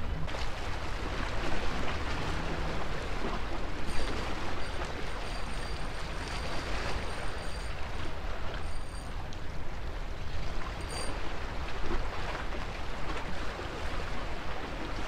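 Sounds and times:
surf washing against rocks: 0:00.0 - 0:09.5
faint high whine: 0:00.1 - 0:12.4.

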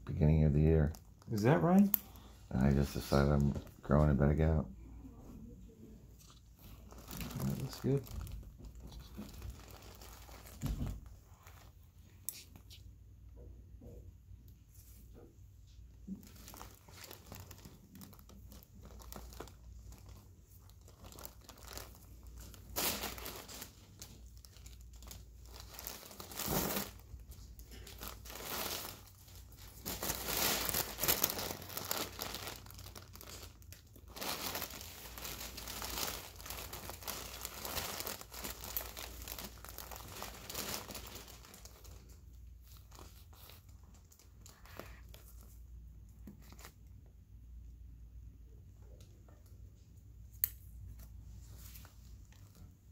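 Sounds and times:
paper crinkling and rustling: 0:06.2 - 0:11.8, 0:16.1 - 0:45.7.

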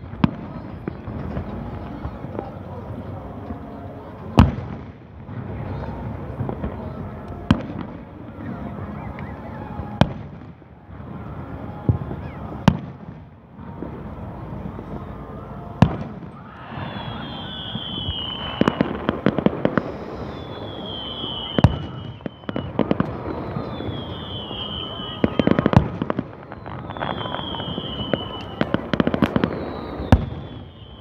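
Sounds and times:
fireworks bursting with bangs: 0:00.0 - 0:31.0
rapid crackling fireworks: 0:00.0 - 0:31.0
falling firework whistles: 0:15.8 - 0:31.0.

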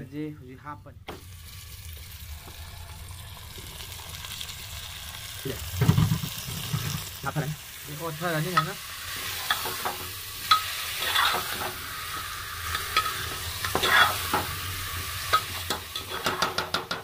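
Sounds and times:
chicken sizzling in pot: 0:01.1 - 0:17.0
metal spoon scraping and clinking pot: 0:09.4 - 0:11.8, 0:12.6 - 0:14.5, 0:15.3 - 0:16.7.

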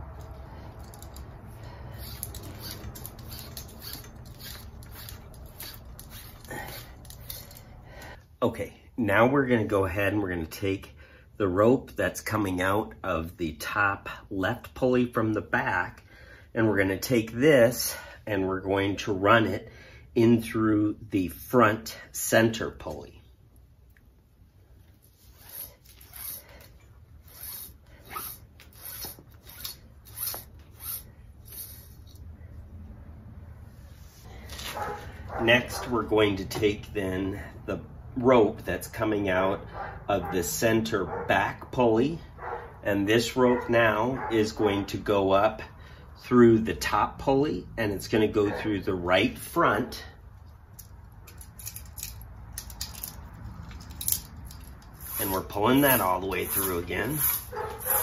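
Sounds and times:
rope rasping through pulley block: 0:00.2 - 0:07.9, 0:25.1 - 0:32.2, 0:54.0 - 0:58.0.

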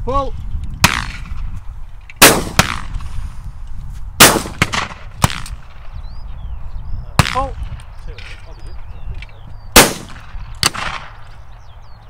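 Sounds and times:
shotgun shots: 0:00.8 - 0:01.4, 0:02.2 - 0:03.0, 0:04.2 - 0:05.8, 0:09.7 - 0:11.2.

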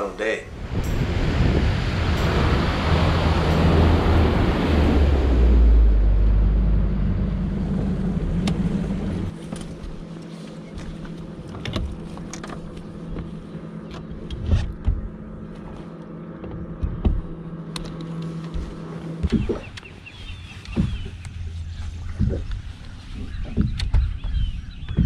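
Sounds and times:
boat motor running: 0:00.1 - 0:25.0
footsteps and gear knocking on deck: 0:10.8 - 0:17.6, 0:23.4 - 0:25.0.

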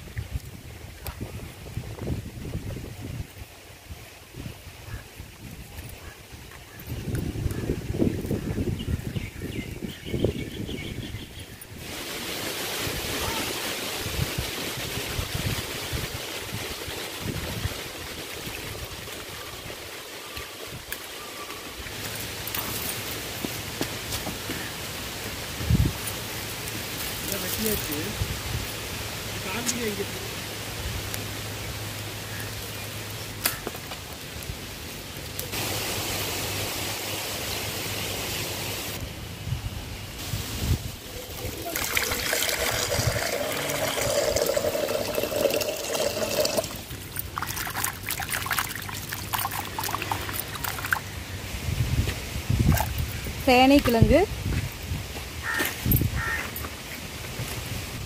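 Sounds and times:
wind gusts buffeting microphone: 0:00.0 - 0:12.0, 0:12.7 - 0:20.0, 0:25.5 - 0:26.0, 0:39.3 - 0:48.4, 0:49.6 - 0:56.2
wind hissing: 0:00.0 - 0:58.0
rustle of dry sticks and leaves: 0:11.4 - 0:58.0
fire crackle: 0:30.4 - 0:37.4
fire hissing: 0:34.3 - 0:39.0.

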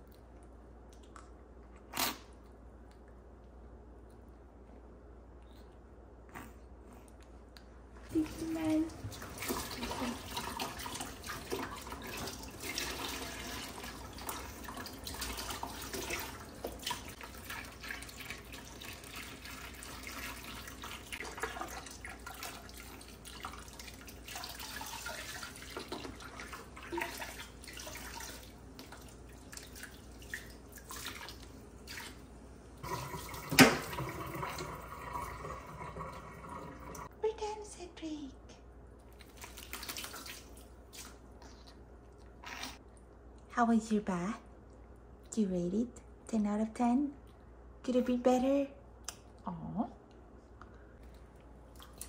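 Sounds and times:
water splashing and dripping: 0:08.2 - 0:37.1, 0:39.0 - 0:41.3, 0:51.2 - 0:52.0.

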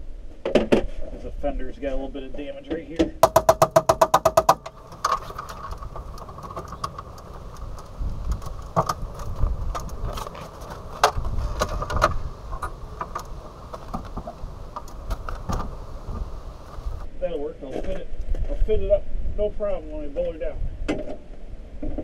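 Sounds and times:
clicks and rattles of car parts: 0:03.0 - 0:15.8
steady hum: 0:03.2 - 0:17.2.

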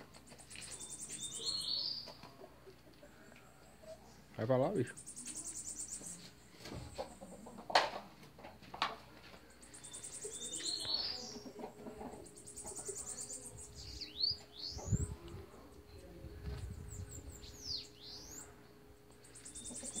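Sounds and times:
birds singing buzzy trills: 0:00.1 - 0:02.3, 0:04.4 - 0:07.1, 0:09.4 - 0:20.0.

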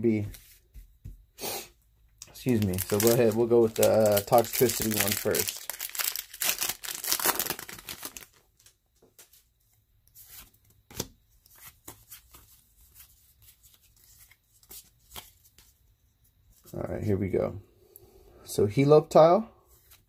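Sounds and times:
foil wrapper crinkling and tearing: 0:02.2 - 0:08.7
cards rustling and clicking: 0:02.2 - 0:09.4.

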